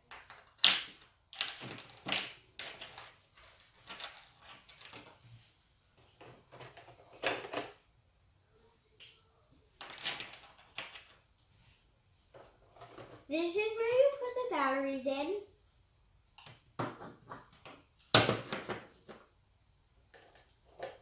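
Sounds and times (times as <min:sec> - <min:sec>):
plastic parts clicking and rattling: 0:00.0 - 0:05.2, 0:06.0 - 0:07.8, 0:09.8 - 0:11.4.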